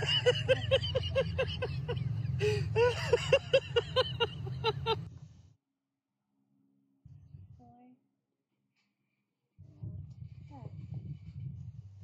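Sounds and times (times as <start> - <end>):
woman laughing: 0.0 - 5.0
car engine rumbling: 0.0 - 5.1.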